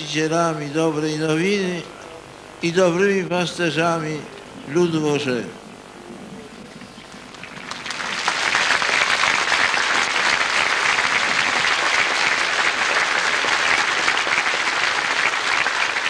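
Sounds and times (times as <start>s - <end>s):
large crowd applauding: 7.2s - 16.0s.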